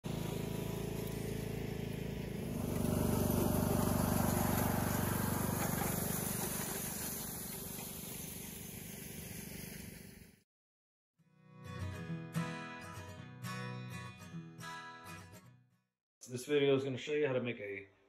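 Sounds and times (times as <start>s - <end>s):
riding lawn mower engine: 0.0s - 10.1s.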